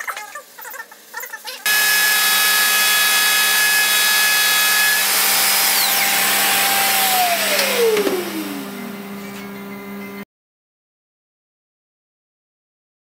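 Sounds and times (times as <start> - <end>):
router high whine: 1.7 - 10.2.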